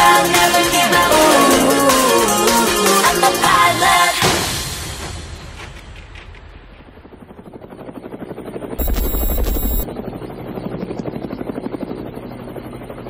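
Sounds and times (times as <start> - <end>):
helicopter rotor chopping: 7.0 - 13.0
high steady tone: 8.8 - 9.9.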